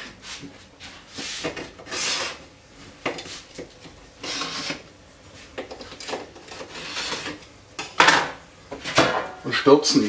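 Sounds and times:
knife scraping metal baking tray: 0:01.2 - 0:02.5, 0:04.2 - 0:04.9, 0:06.0 - 0:07.4.

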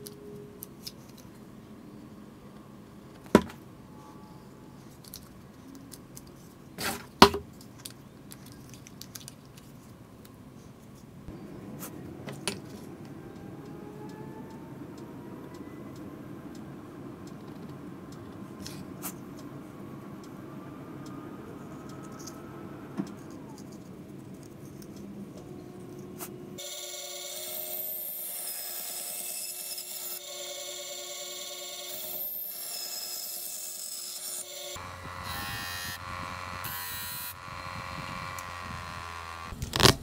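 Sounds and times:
steady low hum: 0:09.9 - 0:26.6.

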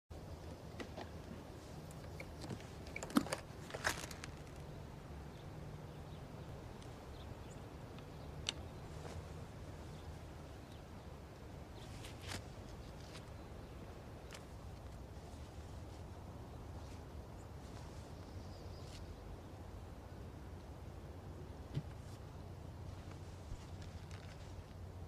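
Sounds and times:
low steady hum: 0:00.1 - 0:25.0
light clicks and rustles: 0:00.7 - 0:04.7, 0:22.9 - 0:24.8.

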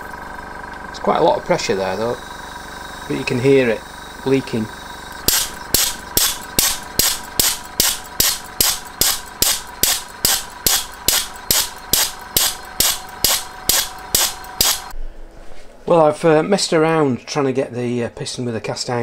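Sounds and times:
engine sharp clicks: 0:05.0 - 0:14.9.

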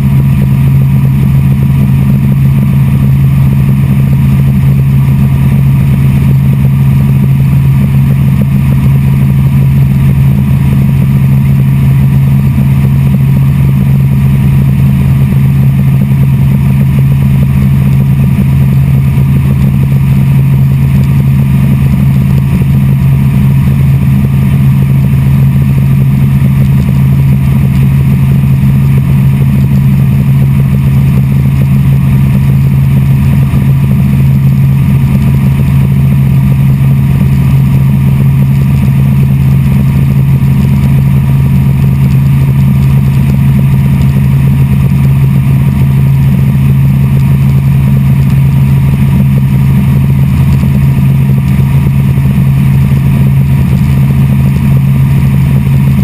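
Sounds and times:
helicopter engine and rotor drone: 0:00.0 - 0:56.0.

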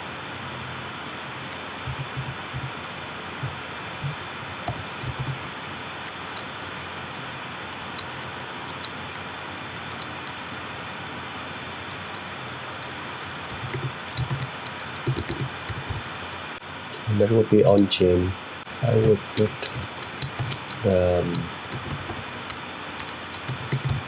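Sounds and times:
steady background hiss: 0:00.0 - 0:24.0
keyboard keys clicking: 0:06.1 - 0:09.2, 0:09.8 - 0:10.4, 0:11.7 - 0:17.1, 0:19.0 - 0:24.0.

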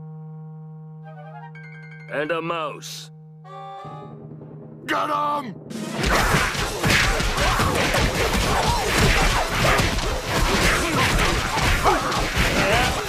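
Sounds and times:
music: 0:00.0 - 0:13.0
cartoon crashes whacks and thuds: 0:05.9 - 0:13.0.

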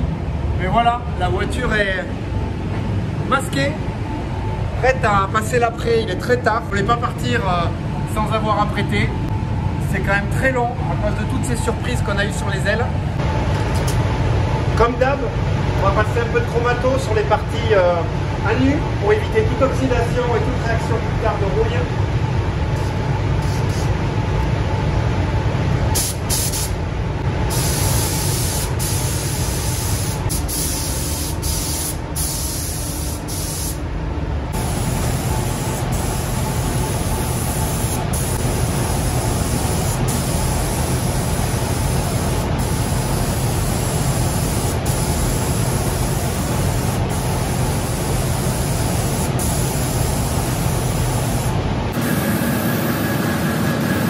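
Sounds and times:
ventilation fans running: 0:00.0 - 0:54.0
spray gun hissing: 0:26.0 - 0:26.8, 0:27.5 - 0:33.8, 0:34.6 - 0:51.6.

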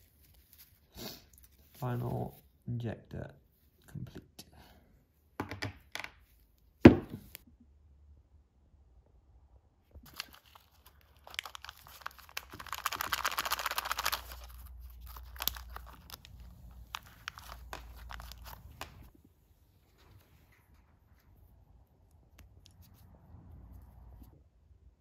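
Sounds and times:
plastic bag crinkling: 0:10.1 - 0:19.1.

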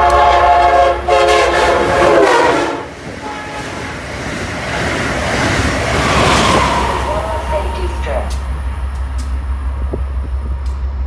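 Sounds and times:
train horn blasts: 0:00.0 - 0:03.9, 0:06.5 - 0:09.0
train rushing past: 0:00.0 - 0:11.0.

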